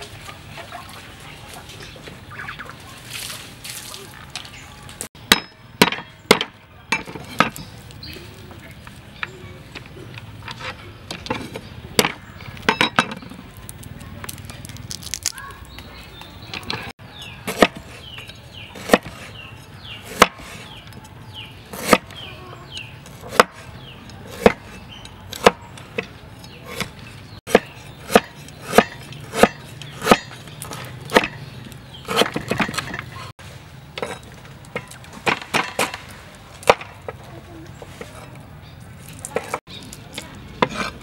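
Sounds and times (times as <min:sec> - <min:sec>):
cleaver chopping on wooden board: 0:18.8 - 0:19.2, 0:21.7 - 0:22.2, 0:23.3 - 0:23.6, 0:24.3 - 0:24.8, 0:27.5 - 0:32.9.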